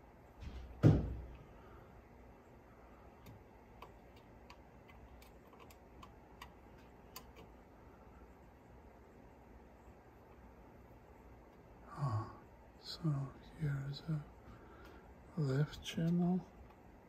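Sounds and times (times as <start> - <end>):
dull thump: 0.4 - 1.3
light irregular clicks: 3.2 - 7.5.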